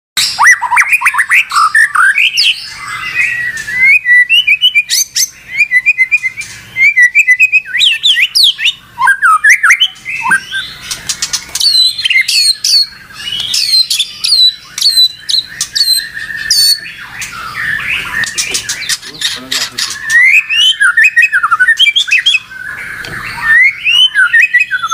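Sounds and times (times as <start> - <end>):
songbird singing: 0.2 - 24.9.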